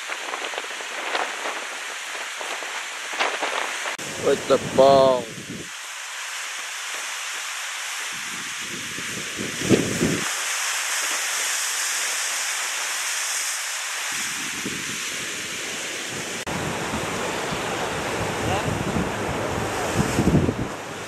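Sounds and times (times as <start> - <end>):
wind buffeting microphone: 0.0 - 5.8, 8.0 - 10.3, 14.1 - 21.0
surf washing against rocks: 0.0 - 21.0.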